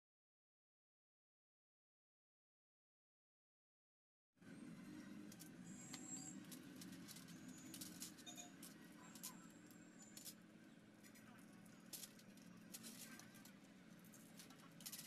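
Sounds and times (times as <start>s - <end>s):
faint low hum: 4.4s - 15.0s.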